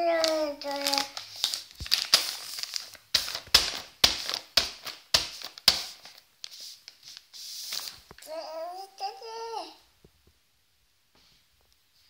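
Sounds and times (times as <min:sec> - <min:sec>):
hand slapping plastic packet: 0:00.0 - 0:08.2.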